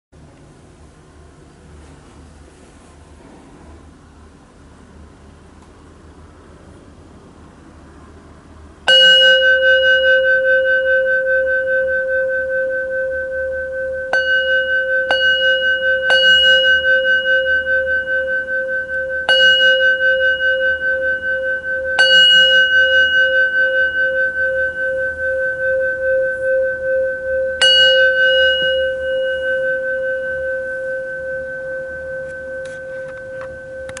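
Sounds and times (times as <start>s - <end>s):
bowl bell ringing: 8.9s - 34.0s.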